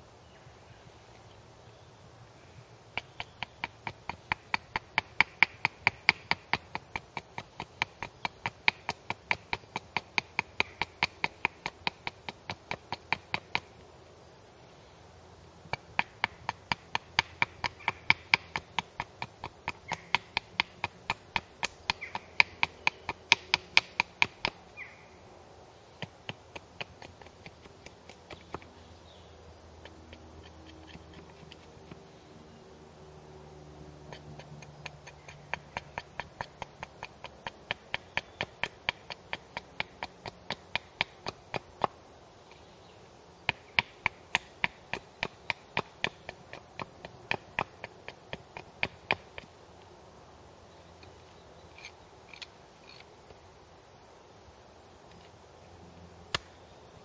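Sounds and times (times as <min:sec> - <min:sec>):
hatchet chopping wood: 0:02.9 - 0:13.7, 0:15.6 - 0:24.8, 0:26.0 - 0:28.7, 0:29.8 - 0:32.0, 0:34.0 - 0:42.0, 0:43.4 - 0:49.5, 0:56.3 - 0:56.5.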